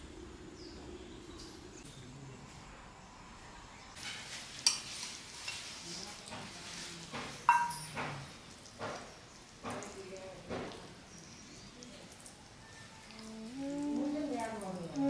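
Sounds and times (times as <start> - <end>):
utensils clinking: 7.2 - 8.1.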